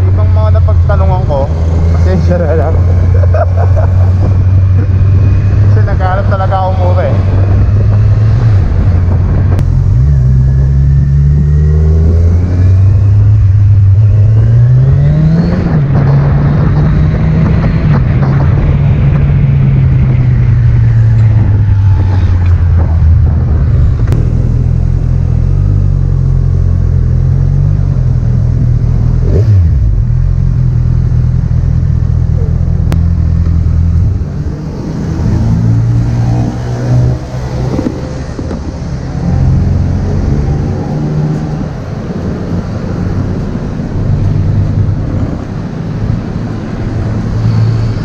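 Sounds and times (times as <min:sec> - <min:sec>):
motorcycle engine running: 0:15.6 - 0:36.0.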